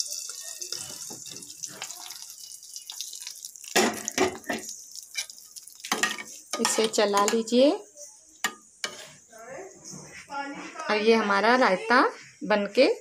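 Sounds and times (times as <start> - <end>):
hot oil sizzling: 0.0 - 9.4.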